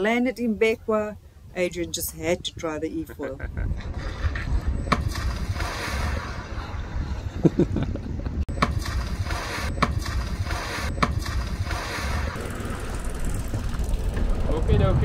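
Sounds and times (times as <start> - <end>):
wind buffeting the microphone: 1.0 - 10.5.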